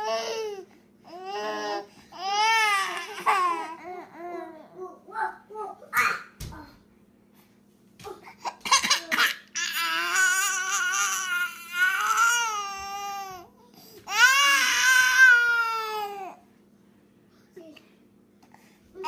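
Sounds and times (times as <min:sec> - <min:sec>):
baby crying: 0:09.6 - 0:13.5, 0:14.1 - 0:16.4.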